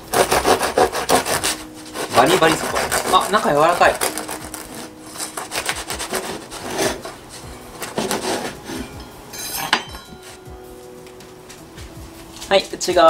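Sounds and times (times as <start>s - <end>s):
bread knife sawing crusty bread: 0.0s - 9.0s.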